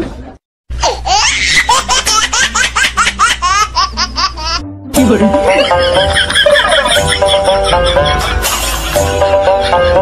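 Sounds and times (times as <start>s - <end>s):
high-pitched laughter: 5.5s - 10.0s.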